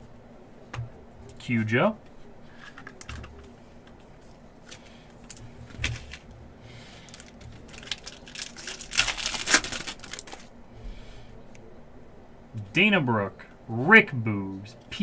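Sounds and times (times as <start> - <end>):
foil wrapper tearing and crinkling: 7.0 - 10.5.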